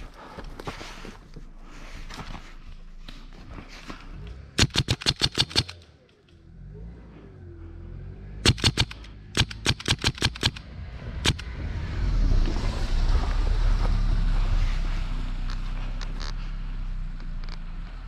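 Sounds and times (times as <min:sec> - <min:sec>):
airsoft rifle shots: 0:04.6 - 0:06.0, 0:08.4 - 0:11.4
car driving by: 0:05.8 - 0:09.7, 0:10.3 - 0:18.0.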